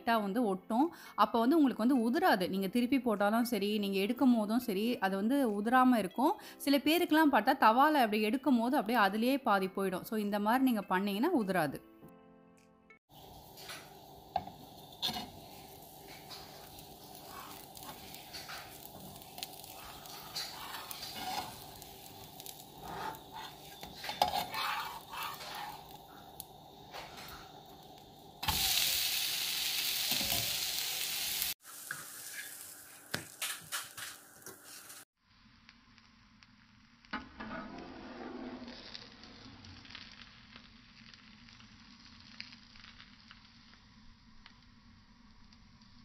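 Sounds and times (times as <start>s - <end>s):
food sizzling on hot griddle: 13.1s - 46.0s
loud even hiss: 27.5s - 32.3s.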